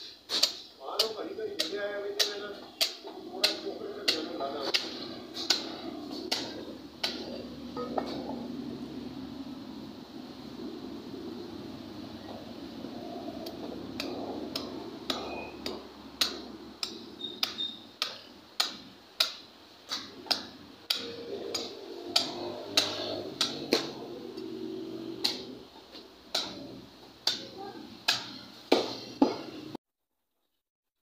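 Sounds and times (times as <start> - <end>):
cleaver chopping through ribs: 0.4 - 8.2, 13.5 - 24.1.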